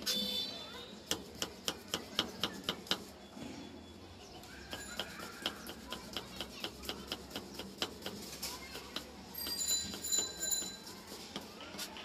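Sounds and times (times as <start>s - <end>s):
knife chopping on wooden board: 1.1s - 3.1s, 4.7s - 9.2s.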